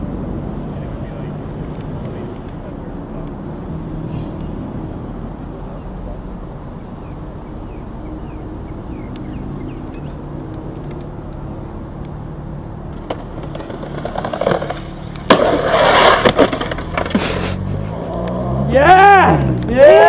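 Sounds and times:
skateboard wheels rolling: 0:12.7 - 0:18.6
skateboard grinding on concrete: 0:12.9 - 0:18.6.

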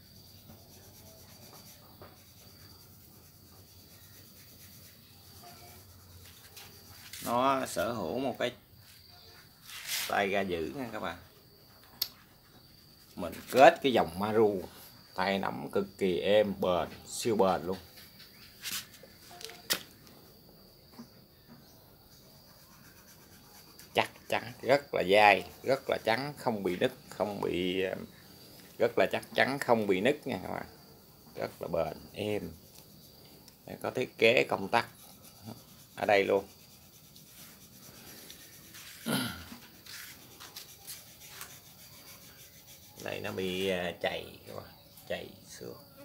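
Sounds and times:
faint rubbing and handling noise: 0:00.0 - 0:15.1, 0:16.7 - 0:20.1, 0:21.7 - 0:44.0
faint high-pitched tone: 0:05.2 - 0:06.2, 0:19.2 - 0:19.8.

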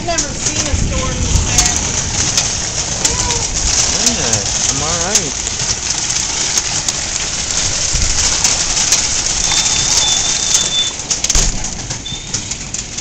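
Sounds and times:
hailstones clicking: 0:00.0 - 0:13.0
heavy rain on wooden deck: 0:00.0 - 0:13.0
thump: 0:11.3 - 0:12.0.

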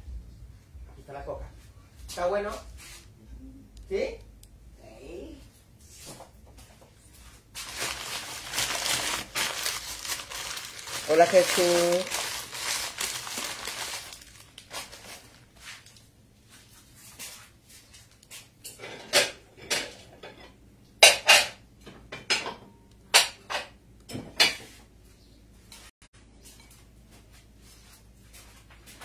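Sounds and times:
paper wrapping crinkling: 0:07.5 - 0:16.1
dishes and cutlery clattering: 0:18.6 - 0:24.8.

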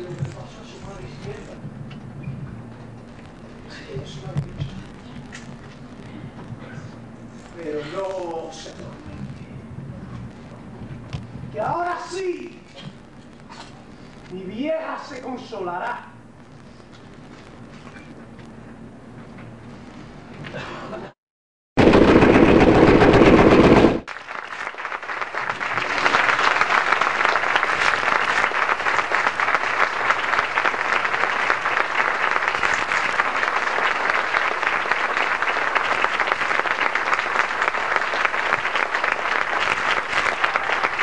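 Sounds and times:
very loud burst: 0:21.8 - 0:24.1
audience applause: 0:22.1 - 0:41.0.

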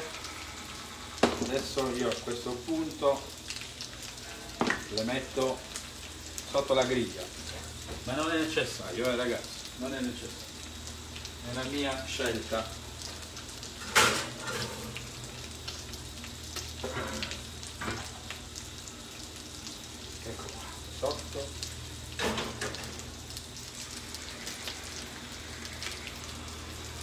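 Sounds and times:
fish sizzling in a frying pan: 0:00.0 - 0:27.0.

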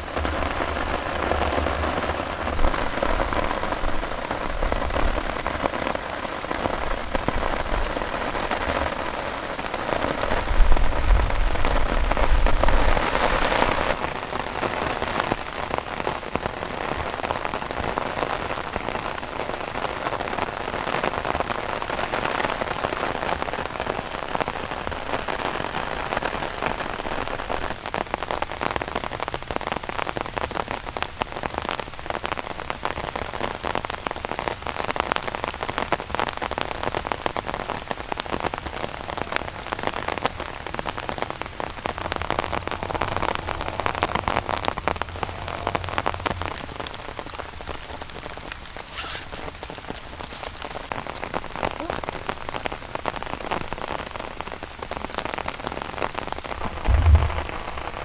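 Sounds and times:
rain falling on leaves: 0:00.0 - 0:58.0
low rumble: 0:56.6 - 0:58.0.

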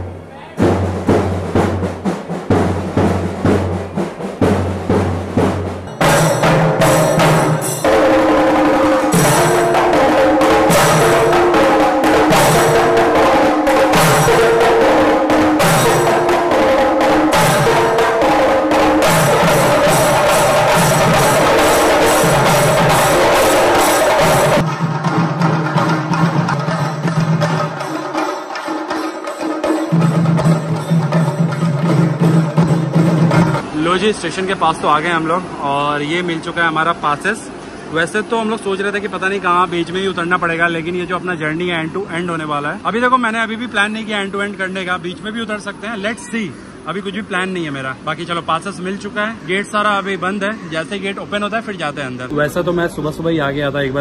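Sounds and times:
drums beaten with sticks: 0:00.0 - 0:34.3.

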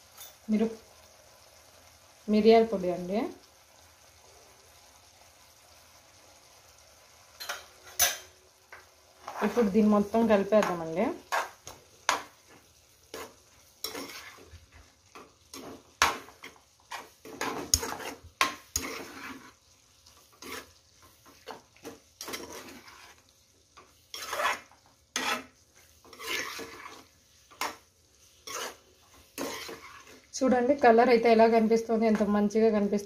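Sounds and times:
metal spatula scraping a pan: 0:07.4 - 0:30.3.

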